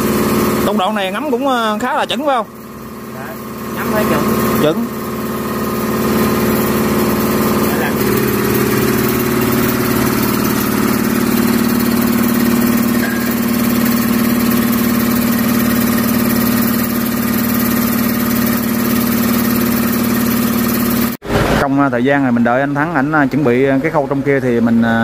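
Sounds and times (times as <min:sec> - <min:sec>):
machinery droning: 0:00.0 - 0:19.8.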